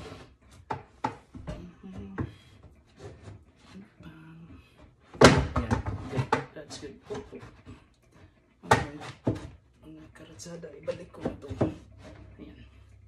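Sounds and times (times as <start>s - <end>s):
wooden shelf knocking on cabinet: 5.2s - 6.5s.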